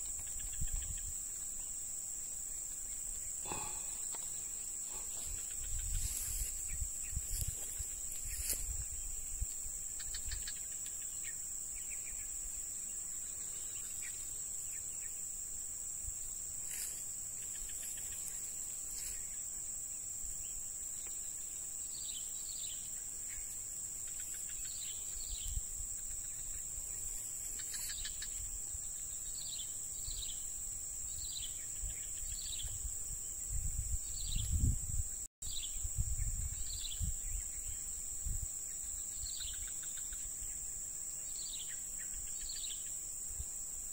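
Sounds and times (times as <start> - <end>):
bird chirping: 0.0 - 15.2, 20.4 - 34.7, 38.7 - 43.0
high-pitched insect drone: 0.0 - 43.9
low rumble on microphone: 31.8 - 38.5.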